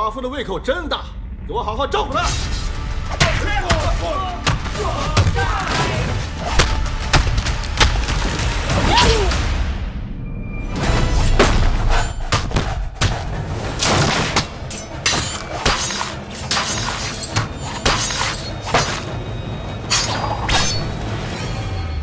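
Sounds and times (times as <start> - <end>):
background music: 0.0 - 22.0
sharp hits and impacts: 11.0 - 19.2.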